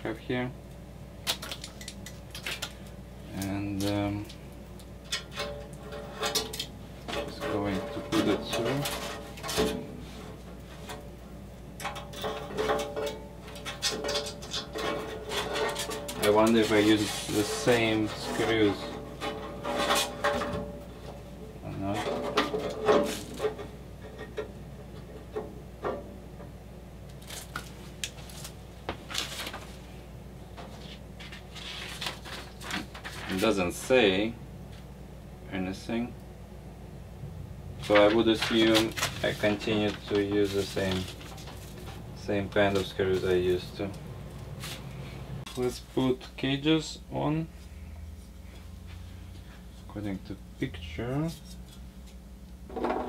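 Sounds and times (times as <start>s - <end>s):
cable scraping against metal edges: 5.1s - 11.0s, 11.8s - 26.0s, 37.8s - 44.0s.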